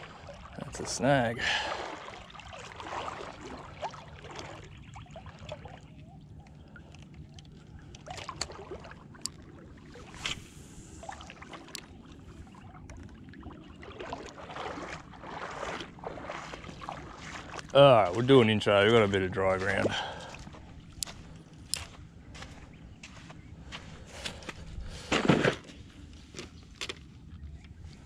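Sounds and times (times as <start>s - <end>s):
short splashes: 0.0s - 6.0s, 7.5s - 22.6s
water sloshing around legs: 0.0s - 28.0s.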